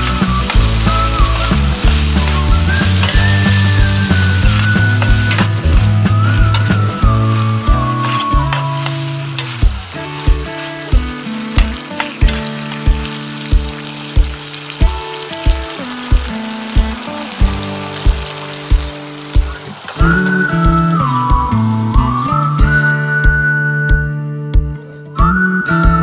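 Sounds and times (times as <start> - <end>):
food sizzling in a pan: 0.0 - 22.5
background music with steady beat: 0.0 - 26.0.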